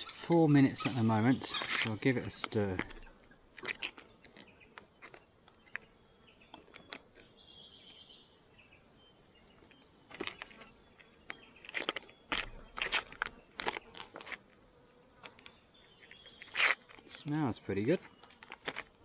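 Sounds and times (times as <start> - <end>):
foil pouch crinkling: 11.6 - 14.5.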